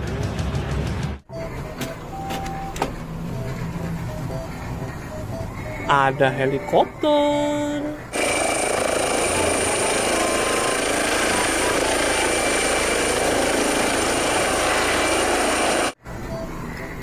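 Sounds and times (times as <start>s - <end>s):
helicopter with high whine: 8.1s - 16.0s.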